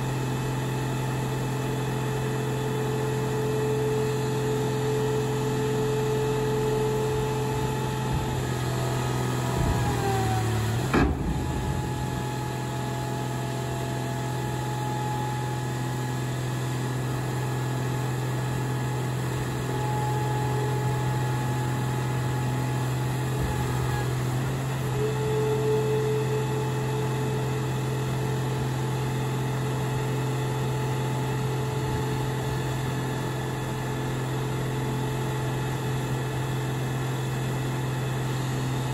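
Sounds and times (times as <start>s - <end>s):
hydraulic power unit humming: 0.0s - 38.9s
single clunk: 9.4s - 12.4s.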